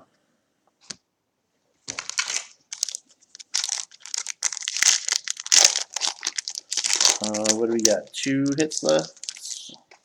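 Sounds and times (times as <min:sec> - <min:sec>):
wrapper crinkling and tearing: 0:01.9 - 0:09.8.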